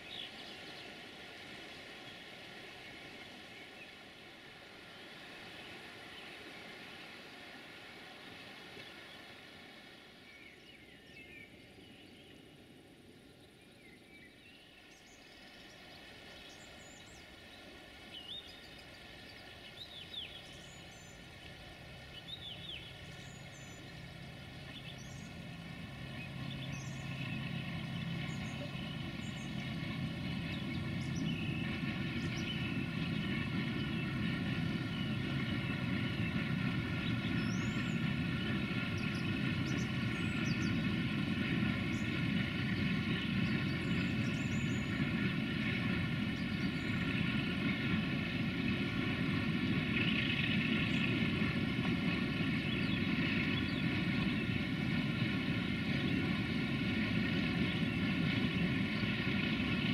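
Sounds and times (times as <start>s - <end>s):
birds chirping: 13.4s - 59.9s
locomotive engine drone: 15.0s - 59.9s.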